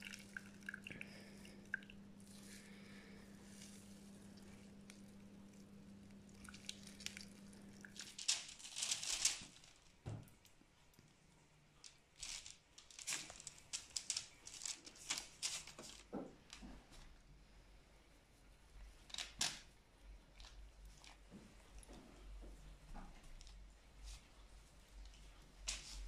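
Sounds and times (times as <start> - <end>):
faint low hum: 0.0 - 26.0
baking paper crinkling: 2.2 - 10.6, 11.8 - 17.2, 25.6 - 26.0.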